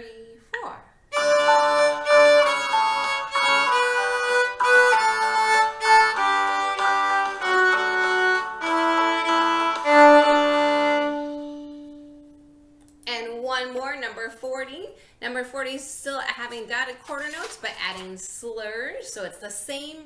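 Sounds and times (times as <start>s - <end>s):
viola playing a scale: 1.1s - 12.8s.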